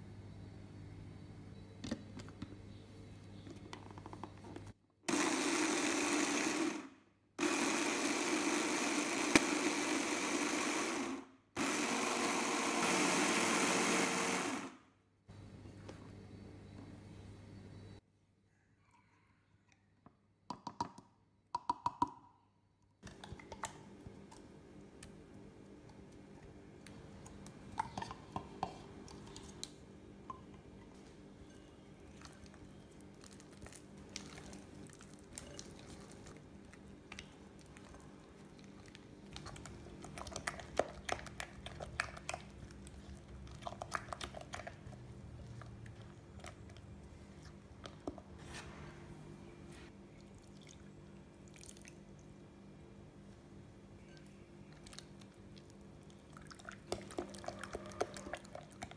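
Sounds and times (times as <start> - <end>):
spatula scraping and mixing batter: 30.8 - 50.0.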